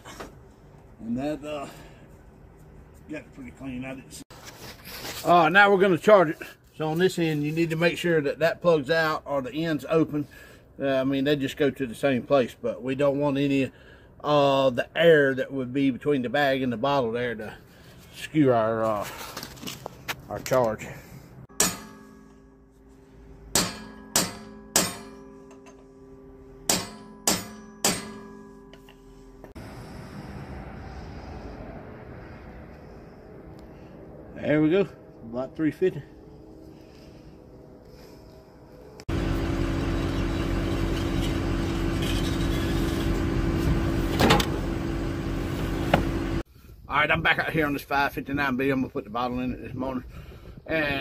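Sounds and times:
metal tool striking steel bottle: 0:21.5 - 0:22.7, 0:23.5 - 0:25.8, 0:26.7 - 0:29.0
steel bottle ringing: 0:21.5 - 0:22.8
small gasoline engine running: 0:39.1 - 0:43.7.

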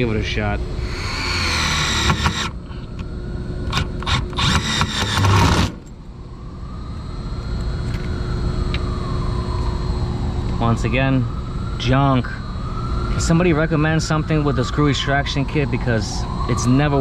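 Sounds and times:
screw extractor bit grinding: 0:00.8 - 0:02.6, 0:03.7 - 0:05.9.

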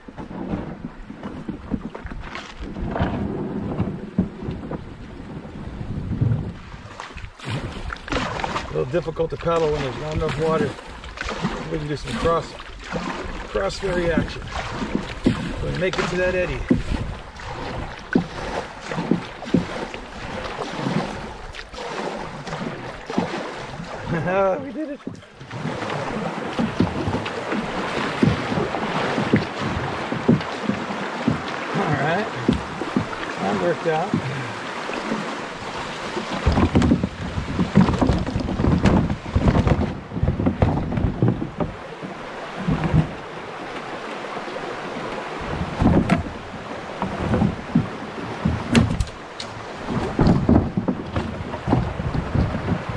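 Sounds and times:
plastic hull knocking on rocks: 0:00.0 - 0:05.0, 0:09.8 - 0:23.4, 0:24.1 - 0:43.9, 0:45.1 - 0:52.9
canoe paddle splashes: 0:00.0 - 0:52.9
river current rushing: 0:06.6 - 0:52.9
river water rushing over rocks: 0:24.7 - 0:39.8.

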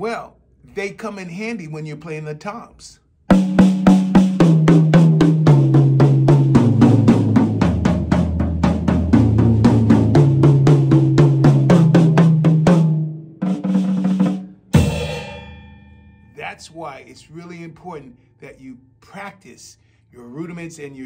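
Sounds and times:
drum toms played with sticks: 0:03.3 - 0:16.6.

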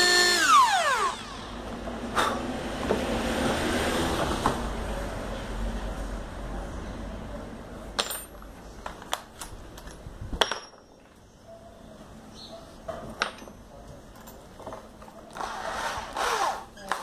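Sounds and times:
small metal hardware clinking: 0:08.0 - 0:11.2, 0:13.2 - 0:15.2.

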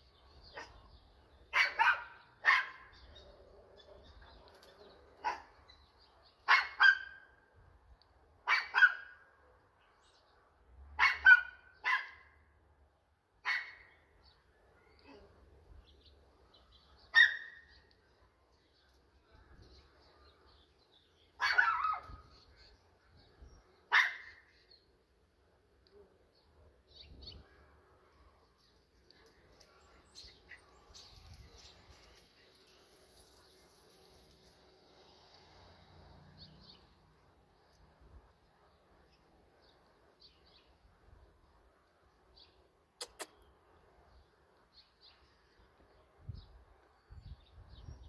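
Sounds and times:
dog barking: 0:00.5 - 0:00.9, 0:01.5 - 0:03.0, 0:05.2 - 0:05.6, 0:06.4 - 0:07.3, 0:08.4 - 0:09.2, 0:11.0 - 0:12.4, 0:13.4 - 0:13.9, 0:17.1 - 0:17.7, 0:21.4 - 0:22.2, 0:23.9 - 0:24.4.

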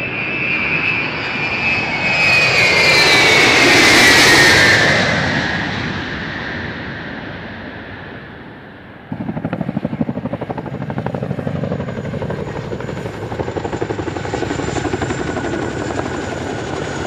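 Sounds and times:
high turbine whine: 0:00.0 - 0:17.0
helicopter rotor chop: 0:09.0 - 0:17.0.

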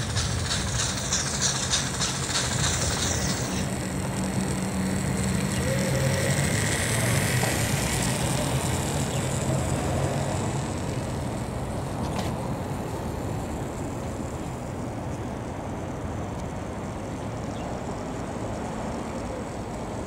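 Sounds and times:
toy train motor whirring: 0:00.0 - 0:15.5.

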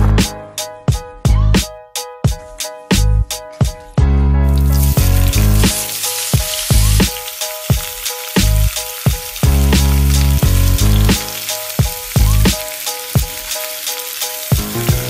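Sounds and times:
background music with beat: 0:00.0 - 0:15.0
meat sizzling in hot oil: 0:04.5 - 0:15.0.

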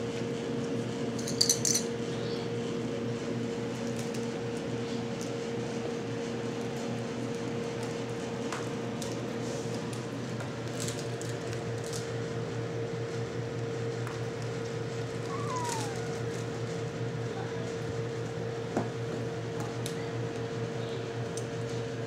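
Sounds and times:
room hum: 0:14.0 - 0:18.7
short falling squeak: 0:15.3 - 0:16.5.

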